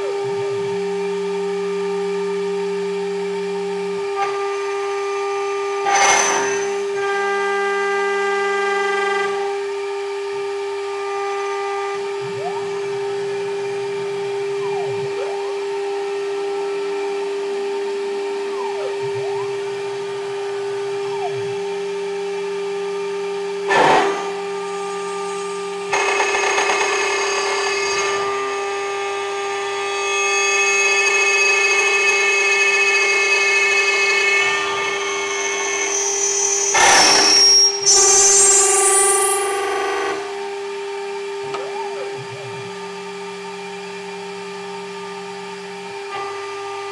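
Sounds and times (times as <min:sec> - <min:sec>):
motors whining: 0:01.9 - 0:46.9
spindle high tone: 0:12.3 - 0:16.1, 0:18.4 - 0:22.3, 0:34.6 - 0:40.2, 0:41.5 - 0:42.7
rough milling noise on metal: 0:19.6 - 0:40.5.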